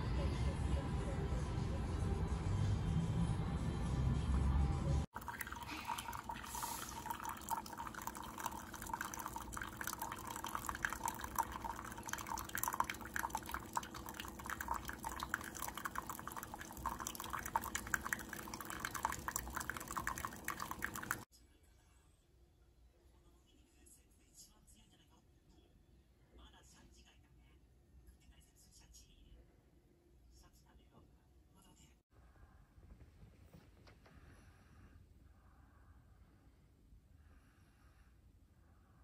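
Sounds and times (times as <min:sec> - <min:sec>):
coffee machine hum: 0:05.2 - 0:21.2
coffee trickling into mug: 0:05.2 - 0:21.3.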